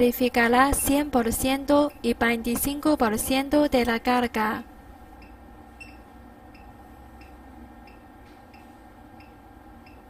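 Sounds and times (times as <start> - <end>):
faint electrical hum: 0.0 - 10.0
soft high ticks: 5.2 - 10.0.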